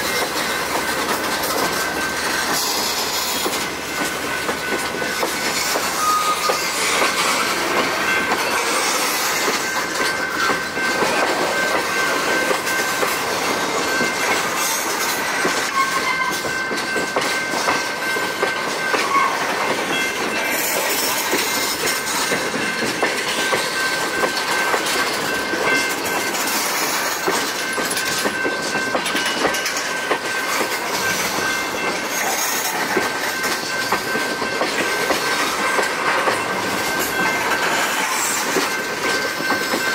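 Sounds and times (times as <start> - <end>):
train wheels clacking over rail joints: 0.0 - 39.9
high-pitched wheel squeal: 5.9 - 6.7, 15.7 - 16.4.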